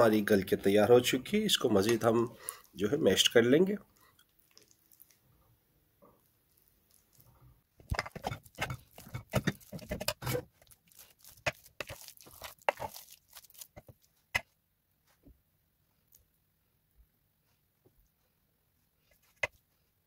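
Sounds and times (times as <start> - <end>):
lentils being mashed in pot: 6.6 - 14.5.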